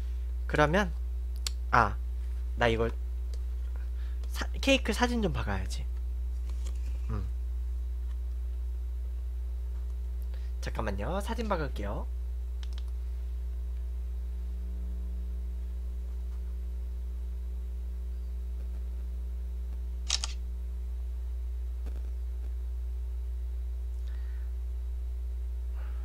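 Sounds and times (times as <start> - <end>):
low electrical hum: 0.0 - 26.0
phone camera shutter click: 20.0 - 20.4.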